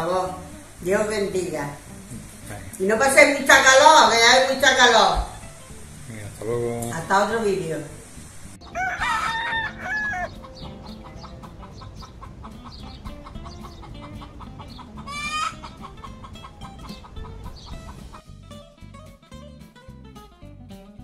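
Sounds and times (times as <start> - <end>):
soft background music: 0.0 - 21.0
rooster crowing: 8.6 - 10.6, 15.1 - 15.6
hen squawk: 8.6 - 18.3.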